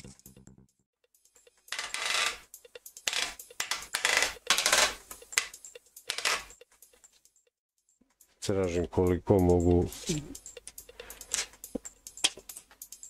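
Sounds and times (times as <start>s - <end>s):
plastic segments crackling and clicking: 1.7s - 6.8s.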